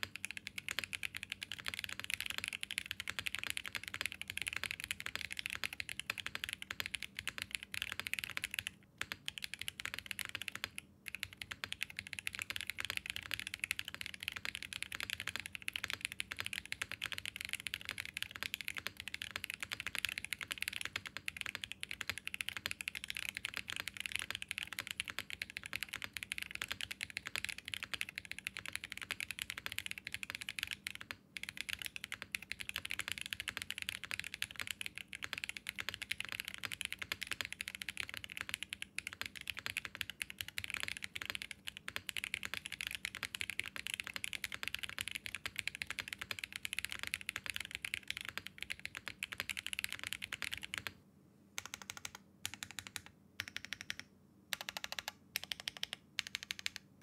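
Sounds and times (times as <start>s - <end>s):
mechanical keyboard typing: 0.0s - 51.0s, 51.6s - 56.9s.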